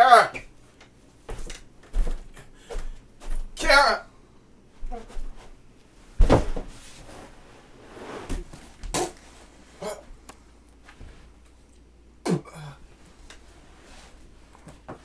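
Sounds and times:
faint scuffling: 0.4s - 3.6s, 4.8s - 11.7s
dull thuds and knocks: 6.2s - 6.8s.

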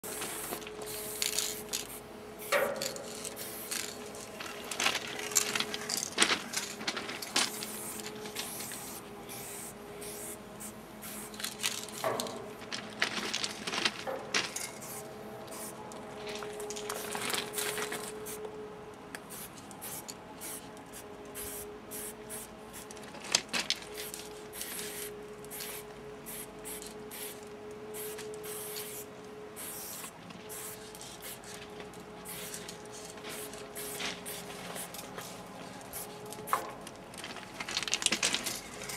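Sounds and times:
spray can hissing: 0.0s - 4.3s, 7.5s - 11.9s, 14.6s - 15.8s, 19.3s - 20.6s, 21.4s - 22.5s, 24.6s - 27.4s, 28.0s - 29.0s, 29.6s - 31.4s, 33.3s - 36.2s.

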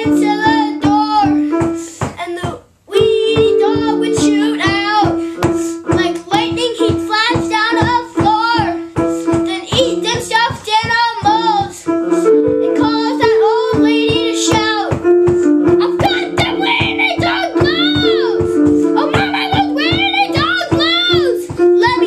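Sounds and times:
electronic keyboard chords and beat: 0.0s - 1.7s, 11.0s - 22.0s
child singing: 0.0s - 22.0s.

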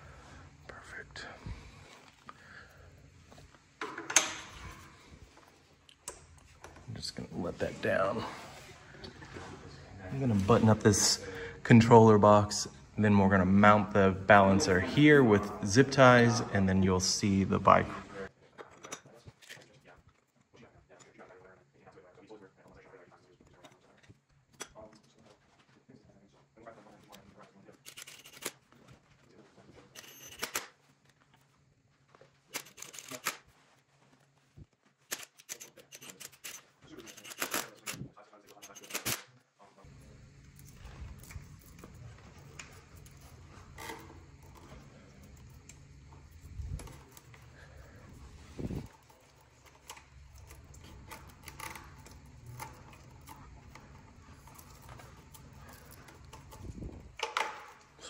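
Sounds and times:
steady low hum: 0.0s - 18.3s, 39.5s - 58.0s.

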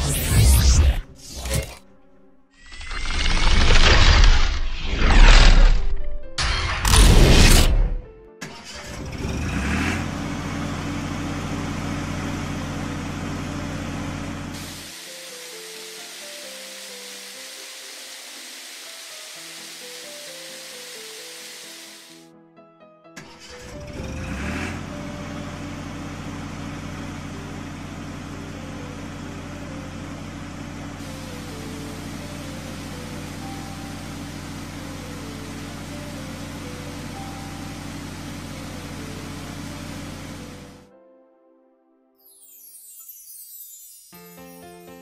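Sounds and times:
cartoon truck engine: 6.4s - 14.6s, 23.2s - 40.9s
constant hiss: 14.6s - 22.2s, 31.0s - 34.7s.

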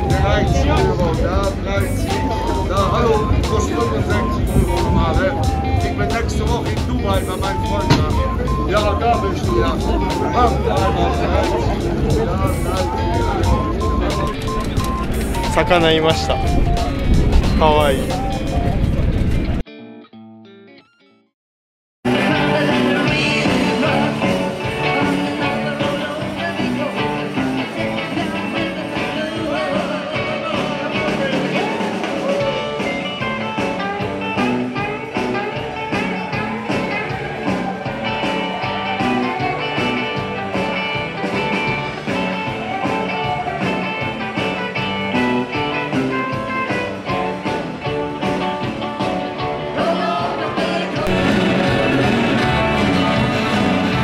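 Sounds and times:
live rock and roll band: 0.0s - 19.6s, 22.1s - 54.0s
person singing: 22.1s - 33.1s, 49.6s - 54.0s.

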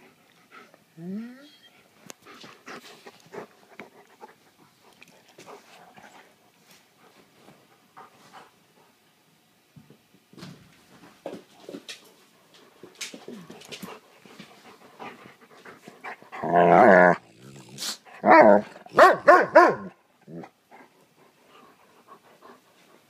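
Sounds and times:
dog yelping and barking: 18.2s - 19.9s.

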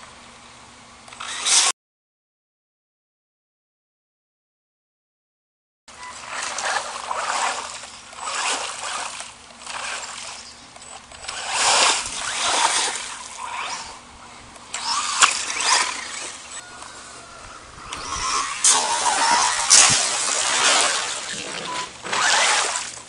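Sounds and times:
rc car splashing through mud: 1.2s - 1.7s, 6.0s - 14.0s, 14.7s - 16.6s, 17.8s - 23.0s.

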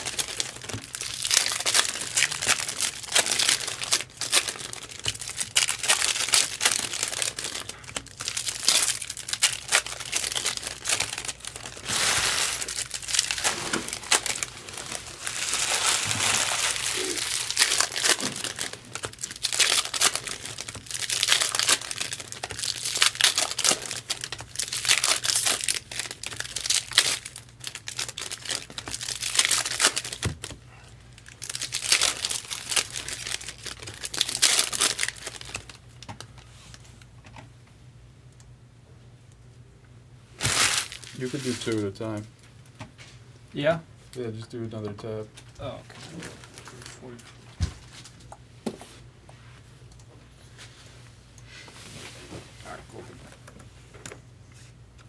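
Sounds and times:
card wrappers tearing and crinkling: 0.0s - 30.6s, 31.2s - 36.8s, 40.4s - 42.2s, 46.0s - 48.3s.

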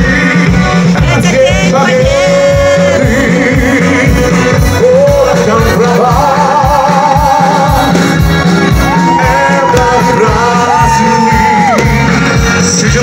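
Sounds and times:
live pop band playing: 0.0s - 13.0s
person singing long notes: 8.9s - 13.0s.

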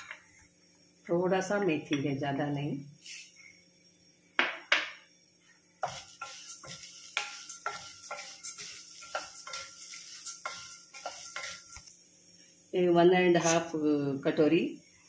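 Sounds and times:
spatula knocking on steel pan: 5.8s - 11.8s
spatula scraping grains on steel: 5.8s - 12.0s.

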